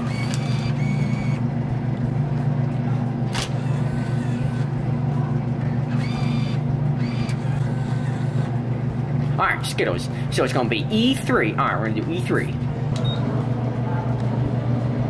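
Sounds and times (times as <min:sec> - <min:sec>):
bill acceptor whirring: 0:00.0 - 0:01.6, 0:03.2 - 0:04.8, 0:05.8 - 0:08.7
vending machine low hum: 0:00.0 - 0:15.0.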